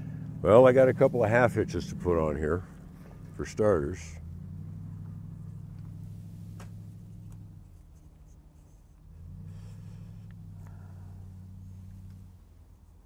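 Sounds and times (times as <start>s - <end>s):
low mechanical drone: 0.0s - 13.0s
string rubbing and clicks: 4.9s - 9.1s.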